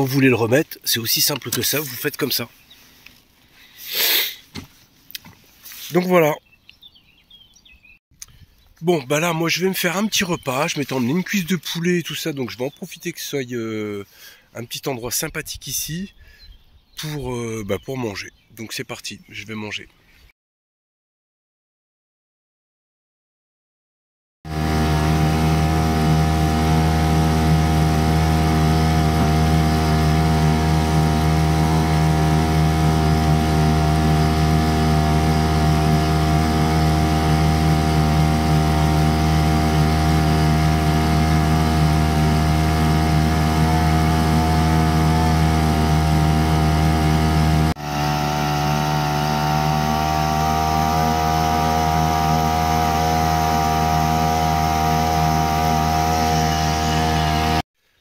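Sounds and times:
outboard motor running: 24.5 - 57.6.

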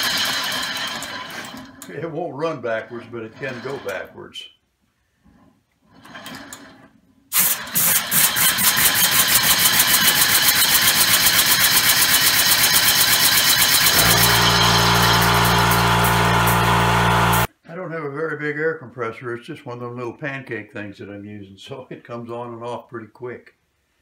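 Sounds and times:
air compressor humming: 7.3 - 17.5
air engine puffing: 13.4 - 17.5.

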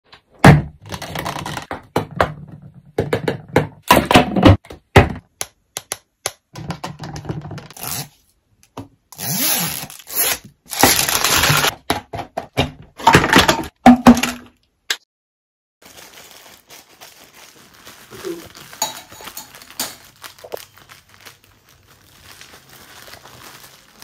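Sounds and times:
plastic figures knocking: 0.4 - 7.8
plastic packaging crackling and tearing: 9.6 - 11.7, 15.8 - 24.0.

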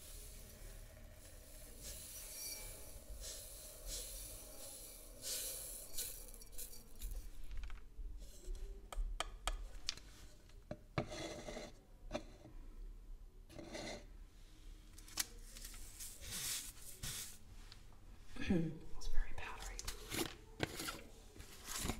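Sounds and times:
powder spooned into glass bowl: 0.0 - 7.6
plastic bottles handled: 0.4 - 7.9.

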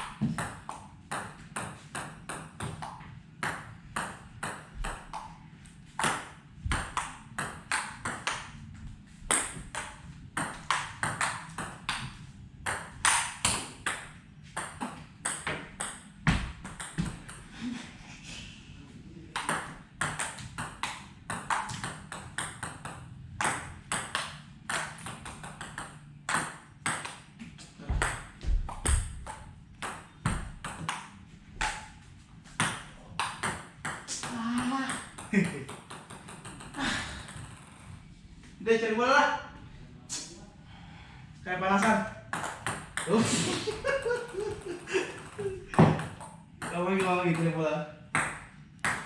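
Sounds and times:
ping-pong ball bouncing on table: 0.0 - 5.4, 6.0 - 8.5, 9.3 - 17.5, 19.4 - 27.2, 27.9 - 31.9, 32.6 - 37.7, 41.8 - 43.2, 45.2 - 49.0
ping-pong ball hitting paddles: 0.0 - 8.6, 9.3 - 17.5, 19.3 - 27.3, 27.9 - 32.0, 32.6 - 37.8, 41.8 - 49.0.

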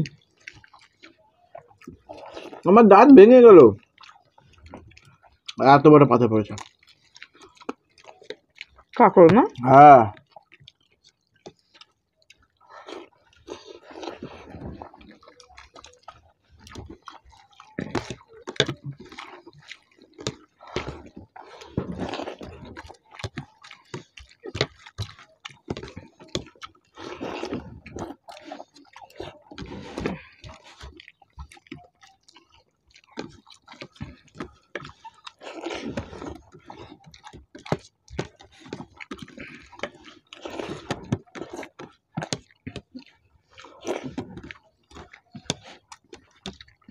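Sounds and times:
wet chewing: 0.0 - 46.9
fingers squishing rice: 9.6 - 46.9.

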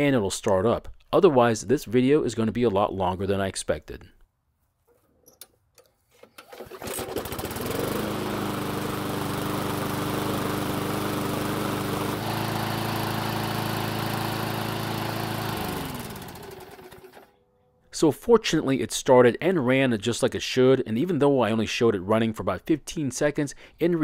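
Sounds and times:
lawn mower engine running: 6.1 - 17.3.

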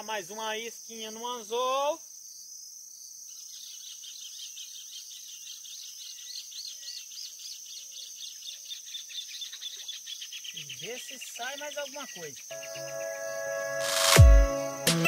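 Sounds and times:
insects droning high: 0.0 - 15.0
rapid high chirps: 10.8 - 15.0.

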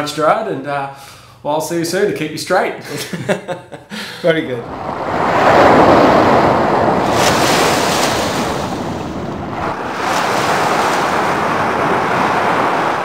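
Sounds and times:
waves washing on shore: 4.6 - 13.0.

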